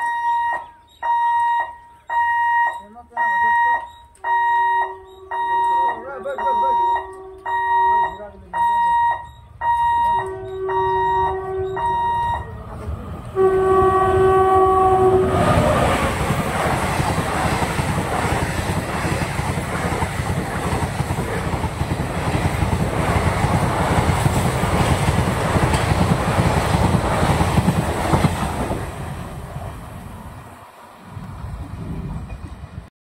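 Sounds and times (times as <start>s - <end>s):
train horn blasts: 4.3s - 8.2s, 9.1s - 12.5s, 13.4s - 15.7s
train wheels clattering over rails: 15.3s - 29.9s.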